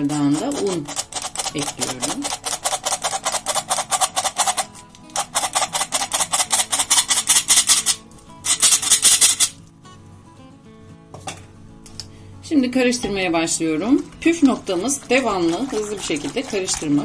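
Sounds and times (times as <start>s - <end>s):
metal flour sifter clicking: 0.0s - 9.6s.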